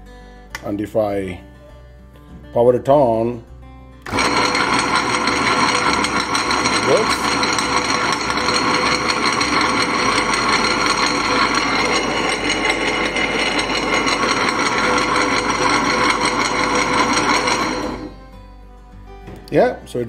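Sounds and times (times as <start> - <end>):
wet grinder motor running: 4.1 - 18.2.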